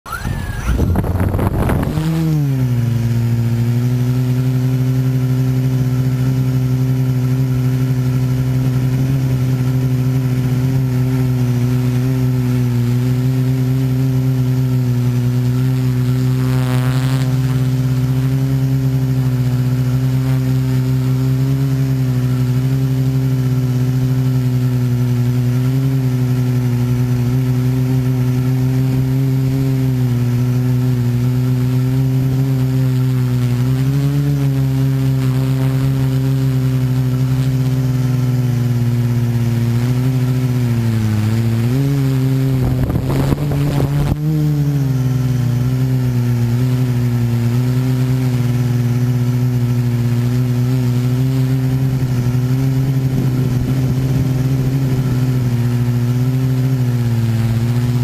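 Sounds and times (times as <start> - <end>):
brief warbling whine: 0.1 - 3.5
drone propellers humming: 0.1 - 58.0.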